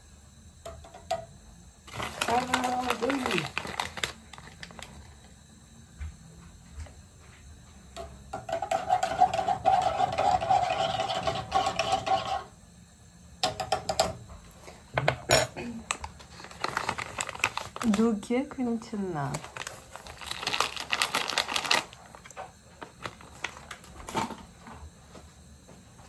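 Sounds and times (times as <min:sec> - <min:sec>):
foil bag crinkling: 0:01.9 - 0:05.2, 0:16.2 - 0:18.3, 0:19.3 - 0:24.2
spoon scraping coffee: 0:08.5 - 0:12.5.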